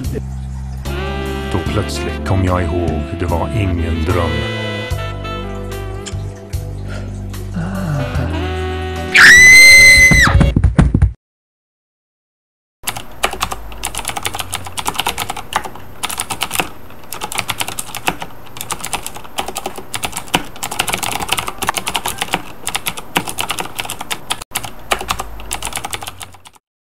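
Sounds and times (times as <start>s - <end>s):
fast typing on laptop keyboard: 12.9s - 26.6s.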